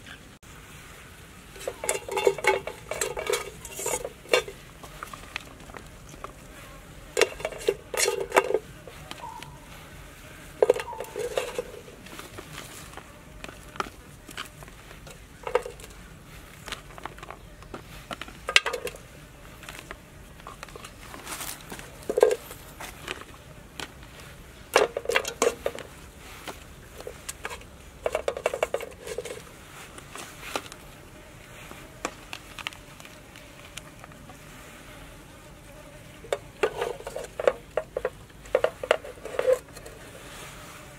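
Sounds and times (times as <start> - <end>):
stalks clunking in metal pot: 1.6 - 4.6, 7.2 - 9.4, 10.6 - 11.8, 18.5 - 19.0.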